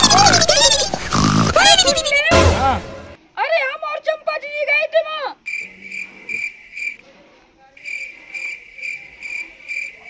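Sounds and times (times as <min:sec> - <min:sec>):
cricket chirping: 0:05.4 - 0:07.0, 0:07.8 - 0:10.0.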